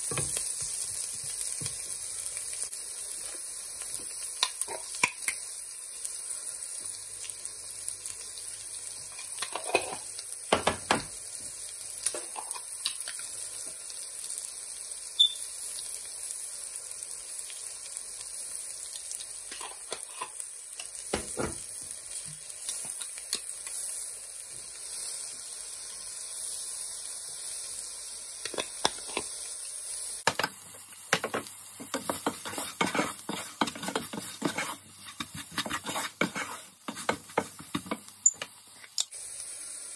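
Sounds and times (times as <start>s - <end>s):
onions sizzling in oil: 0.0s - 39.9s
wooden spatula scraping a pan: 31.2s - 38.0s.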